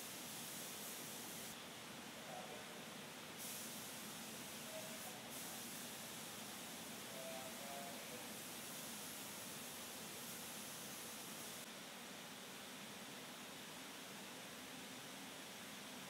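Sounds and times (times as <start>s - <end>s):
paint spray gun hissing: 0.0s - 1.6s, 3.4s - 7.1s, 8.3s - 11.7s.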